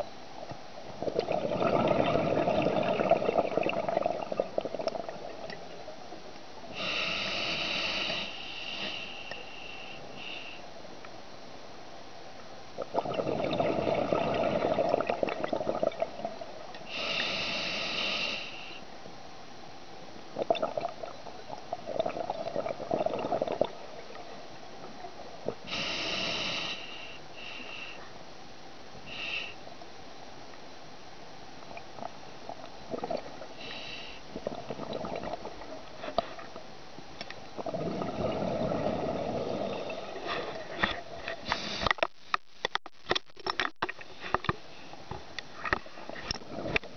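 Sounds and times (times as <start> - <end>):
bubbling exhalations: 1.0 - 5.6, 12.8 - 16.4, 20.4 - 24.2, 32.9 - 33.7, 34.3 - 36.4, 37.6 - 40.9
hissing inhalations: 6.8 - 10.6, 41.4 - 42.0.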